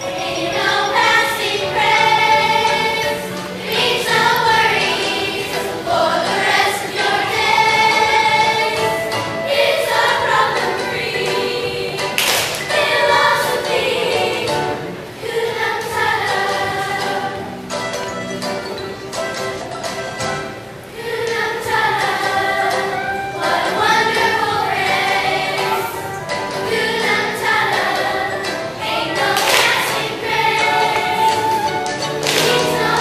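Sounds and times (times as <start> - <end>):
children singing in unison: 0.0 - 17.5, 20.9 - 33.0.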